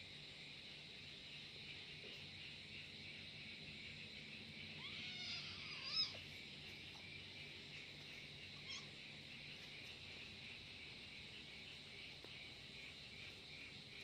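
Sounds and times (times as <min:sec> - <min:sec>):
crickets chirping: 0:00.0 - 0:14.0
kitten meowing angrily: 0:04.8 - 0:06.2.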